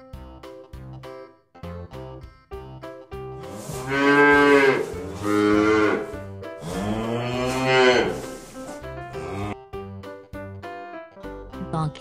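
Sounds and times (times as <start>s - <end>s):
cow mooing: 3.4s - 9.6s.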